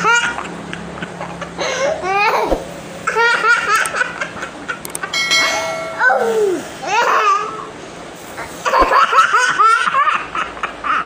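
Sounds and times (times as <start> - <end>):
faint steady hum: 1.0 - 8.6.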